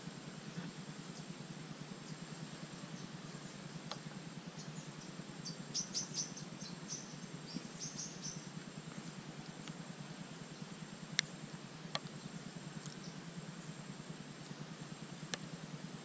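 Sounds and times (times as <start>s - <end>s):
insect whine: 0.0s - 16.0s
small bird chirping: 0.5s - 9.7s, 10.4s - 13.8s.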